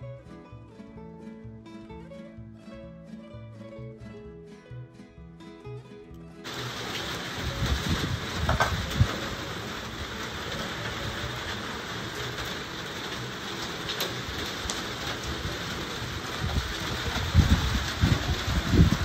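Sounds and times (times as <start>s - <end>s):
steady rain falling: 6.4s - 19.0s
wood fire crackling: 6.4s - 19.0s.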